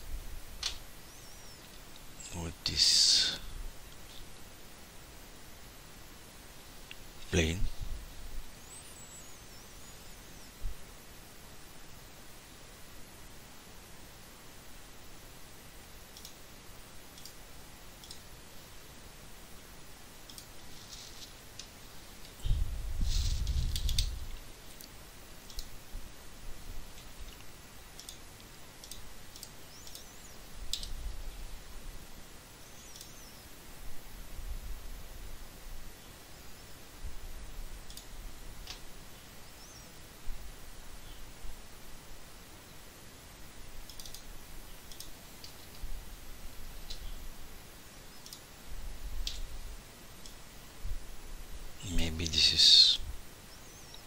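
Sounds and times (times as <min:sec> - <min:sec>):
computer mouse clicks: 0:16.1 - 0:16.4, 0:17.1 - 0:17.4, 0:18.0 - 0:18.3, 0:20.2 - 0:20.6, 0:23.7 - 0:25.8, 0:27.0 - 0:30.1, 0:30.7 - 0:31.0, 0:32.8 - 0:33.2, 0:37.9 - 0:38.8, 0:43.8 - 0:45.8, 0:48.2 - 0:48.5, 0:49.2 - 0:49.5
mouse buttons clicking: 0:16.1 - 0:16.4, 0:18.0 - 0:18.2, 0:27.4 - 0:28.2, 0:28.8 - 0:30.1, 0:32.8 - 0:33.2, 0:43.8 - 0:45.7.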